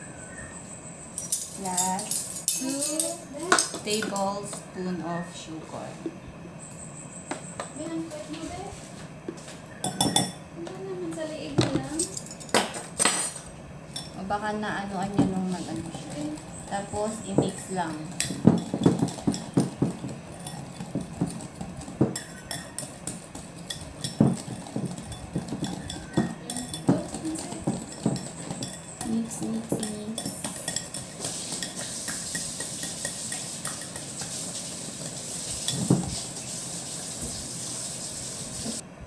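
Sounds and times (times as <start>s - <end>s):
whisk beating batter in glass bowl: 15.3s - 38.8s.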